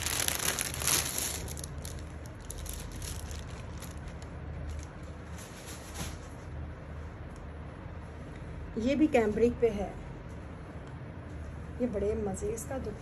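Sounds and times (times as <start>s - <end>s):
plastic packaging crinkling: 0.0s - 6.2s
low steady hum: 0.0s - 13.0s.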